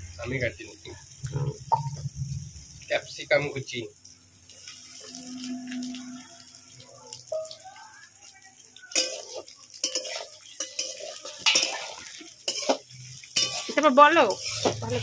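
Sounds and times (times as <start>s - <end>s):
metal spatula scraping a wok: 4.6s - 6.3s, 9.0s - 15.0s.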